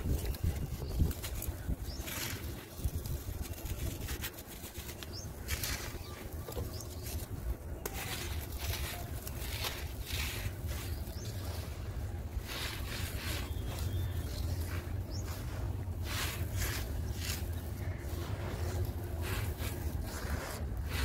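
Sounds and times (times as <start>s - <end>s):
sand crumbling and trickling: 0.0s - 21.0s
steady low rumble: 4.8s - 21.0s.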